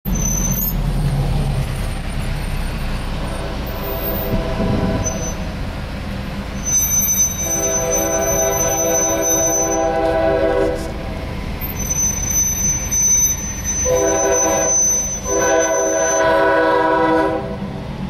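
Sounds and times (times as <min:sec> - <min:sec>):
steady low rumble: 0:00.8 - 0:06.6
locomotive air horn chord: 0:03.4 - 0:05.5, 0:07.2 - 0:11.0, 0:13.7 - 0:17.7.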